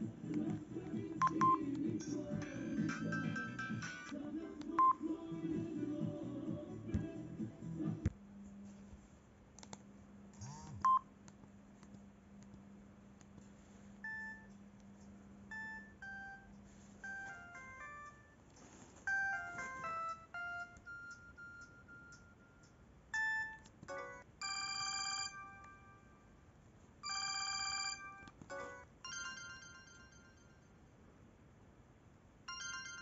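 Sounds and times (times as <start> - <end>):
mobile phone ringtones: 19.1 - 26.2, 27.0 - 30.8, 32.5 - 33.0.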